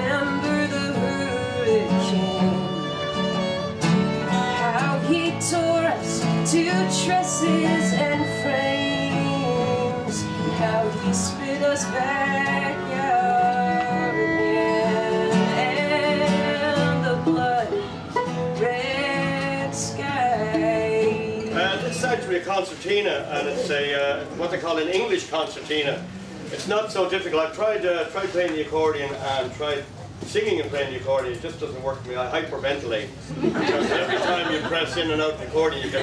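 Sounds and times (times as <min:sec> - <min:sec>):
woman singing: 0:00.0 - 0:22.0
fiddle: 0:00.0 - 0:24.2
strummed acoustic guitars: 0:00.0 - 0:29.5.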